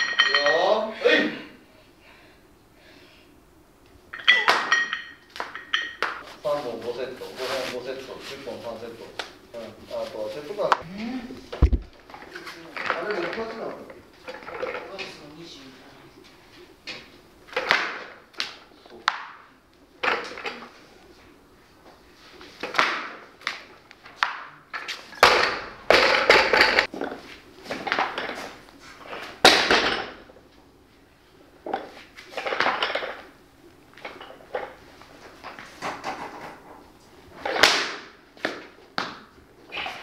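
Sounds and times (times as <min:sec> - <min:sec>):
barbell and bumper plates clattering: 0:25.2 - 0:26.9.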